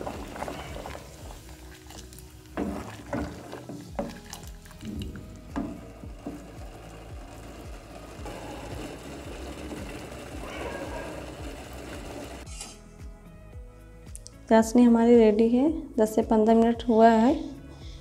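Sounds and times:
syrup boiling in a saucepan: 0.0 - 12.4.

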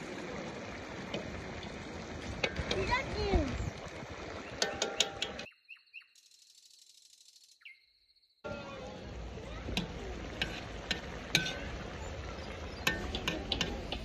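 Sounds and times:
fire crackling: 0.0 - 5.4
food sizzling and bubbling in pot: 0.0 - 5.5, 8.4 - 14.0.

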